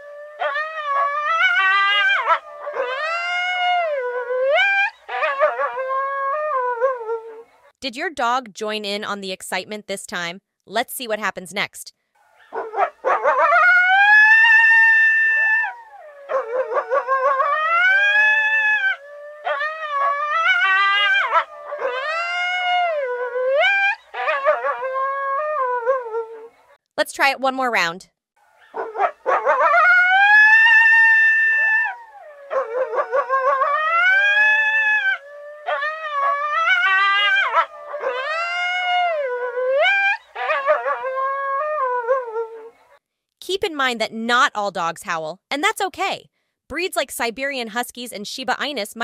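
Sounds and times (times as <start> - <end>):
coyotes howling: 0.0 - 7.2, 12.4 - 26.5, 28.6 - 42.7
coyotes yipping: 12.3 - 15.6, 28.6 - 31.7.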